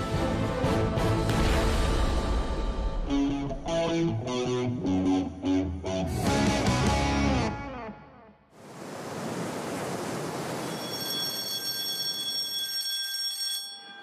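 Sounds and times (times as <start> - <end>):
sea water rushing and foaming: 8.6 - 11.4
high-pitched electronic alarm tone: 10.6 - 14.0.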